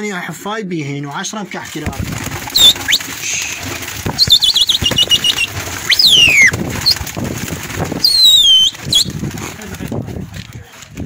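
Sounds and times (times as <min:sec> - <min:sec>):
pigeons flapping wings: 0:01.6 - 0:11.0
loud high whistles: 0:04.2 - 0:07.0, 0:08.0 - 0:09.1.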